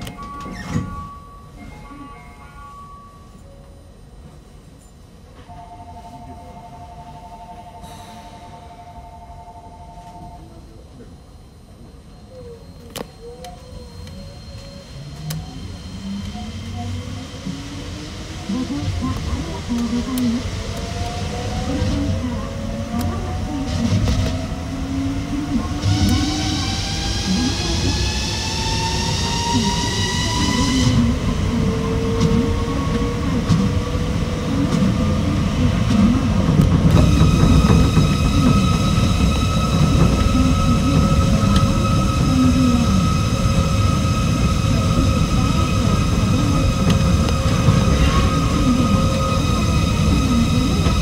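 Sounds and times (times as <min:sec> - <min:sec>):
train motor whine rising: 0:11.8 - 0:51.0.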